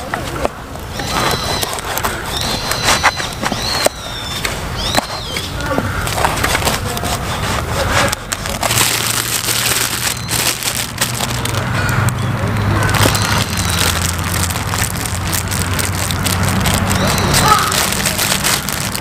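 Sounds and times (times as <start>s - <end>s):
knife sawing through crusty bread: 6.2s - 8.8s.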